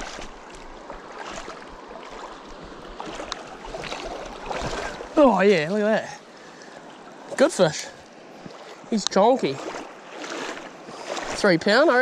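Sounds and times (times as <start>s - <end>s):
small splashes in water: 0.0s - 5.3s, 8.4s - 11.8s
river water running: 0.0s - 12.0s.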